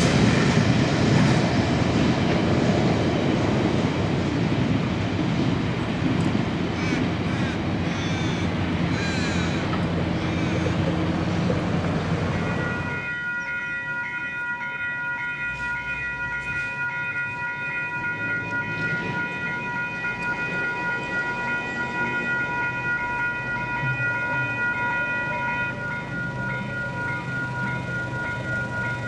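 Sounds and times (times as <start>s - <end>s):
level crossing bells ringing: 12.1s - 29.0s.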